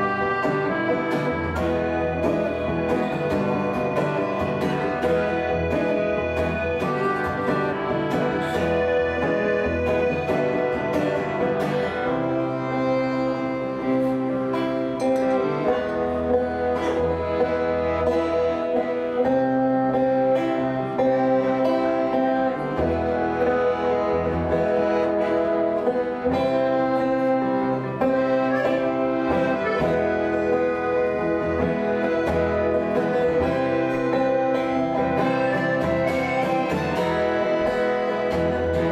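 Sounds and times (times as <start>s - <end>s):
accordion chords: 0.0s - 38.9s
acoustic guitar strumming: 0.0s - 38.9s.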